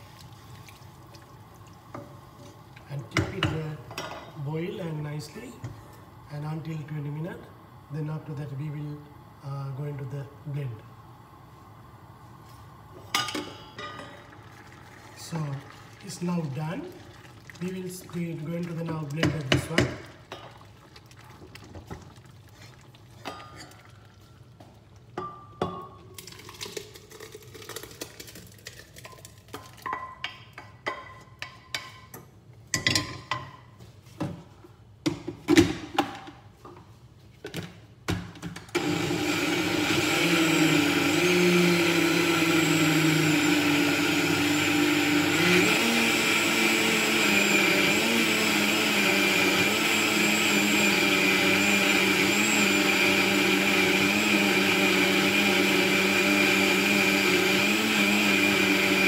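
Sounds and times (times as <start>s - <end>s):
soup being poured: 0.0s - 2.8s, 14.3s - 19.5s, 20.2s - 25.2s, 26.1s - 29.9s
blender motor running: 38.8s - 59.0s.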